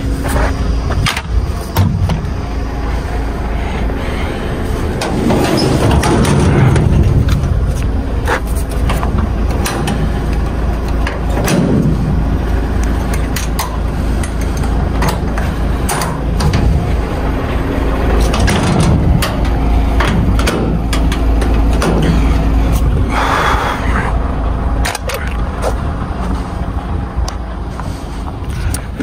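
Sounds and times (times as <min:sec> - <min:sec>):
truck engine and road rumble: 0:00.0 - 0:29.0
knocks and rattles: 0:04.9 - 0:17.0, 0:18.0 - 0:23.0.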